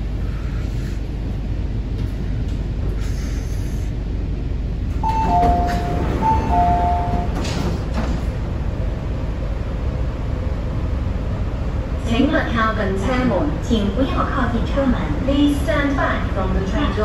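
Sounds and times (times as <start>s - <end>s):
train car low rumble: 0.0s - 17.0s
two-note door chime: 5.0s - 7.4s.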